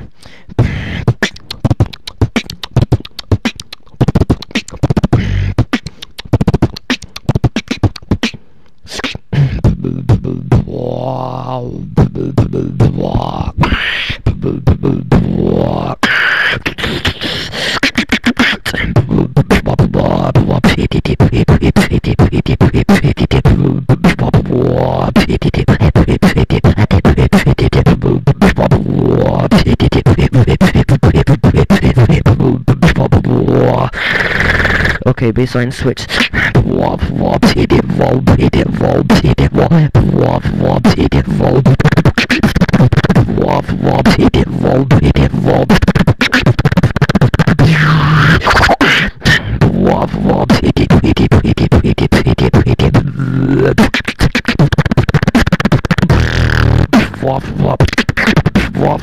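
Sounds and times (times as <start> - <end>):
person beatboxing: 0.0 - 59.0
low bass hum: 11.8 - 13.5.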